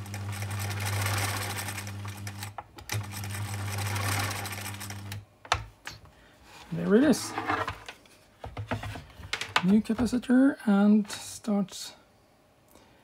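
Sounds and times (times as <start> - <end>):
sewing machine running: 0.0 - 5.2.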